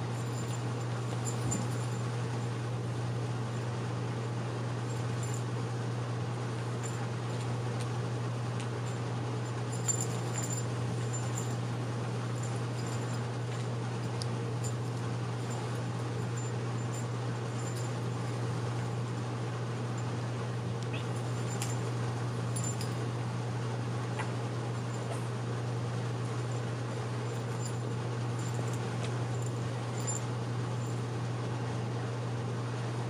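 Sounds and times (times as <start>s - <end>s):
low hum: 0.0s - 32.2s
kittens play-wrestling: 0.1s - 2.5s, 8.6s - 19.2s, 24.0s - 31.1s.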